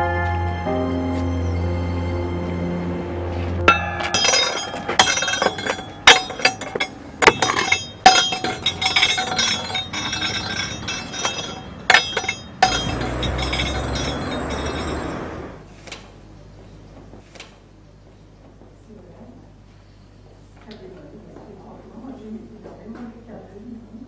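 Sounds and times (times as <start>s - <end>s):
glass clinking and crashing: 3.7s - 15.2s.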